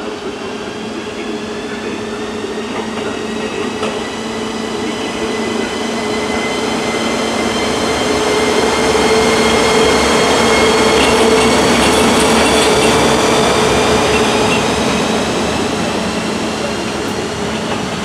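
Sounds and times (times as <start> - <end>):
electric locomotive hum and whine: 0.0 - 18.0
wheels rumbling on rails: 9.4 - 18.0.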